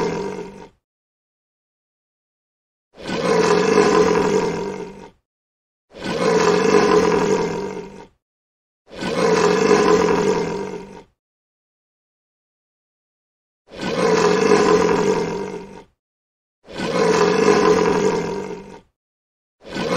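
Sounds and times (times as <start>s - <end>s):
lion roar: 0.0s - 0.8s, 3.0s - 5.2s, 5.9s - 8.2s, 8.9s - 11.2s, 13.7s - 16.0s, 16.7s - 19.0s, 19.6s - 19.9s.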